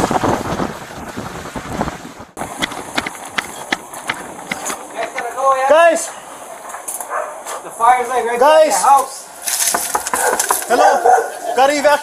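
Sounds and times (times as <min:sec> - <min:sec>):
wind buffeting microphone: 0:00.0 - 0:05.4.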